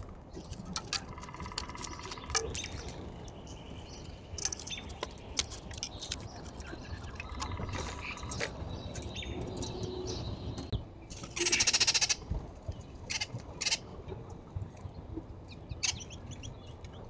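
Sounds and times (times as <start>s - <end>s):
harsh rattling bird call: 11.4s - 12.2s, 13.1s - 13.8s.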